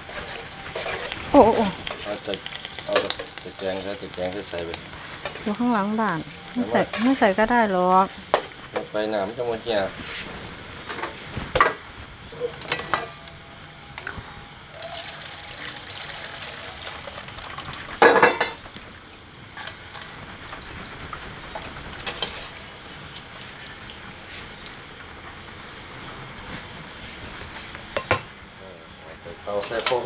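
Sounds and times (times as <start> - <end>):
crickets chirping: 0.0 - 30.0
metal utensils clinking: 0.1 - 5.5, 12.6 - 13.4, 18.0 - 18.6
water splashing into strainer: 14.8 - 18.9.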